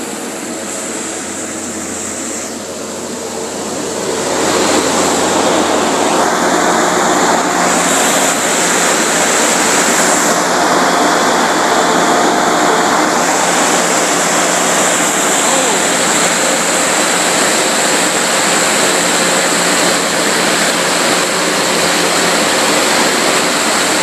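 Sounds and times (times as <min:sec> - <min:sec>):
foam generator fan rushing: 0:00.0 - 0:24.0.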